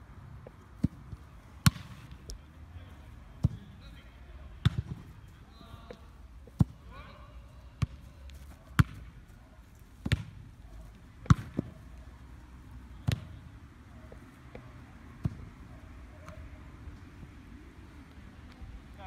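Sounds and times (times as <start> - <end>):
football being kicked thuds: 0.8 - 2.0, 4.6 - 5.0, 8.6 - 9.1, 10.0 - 10.5, 11.2 - 11.8, 13.0 - 13.4, 15.2 - 15.5.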